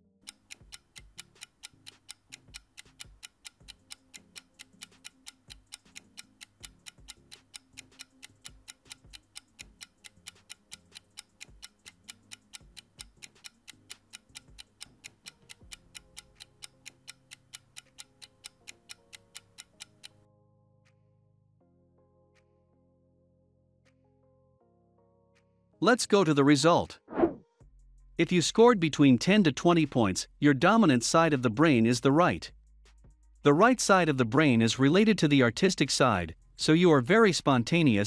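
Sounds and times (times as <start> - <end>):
faint background music: 0.1 - 38.0
clock-like ticking: 0.2 - 20.2.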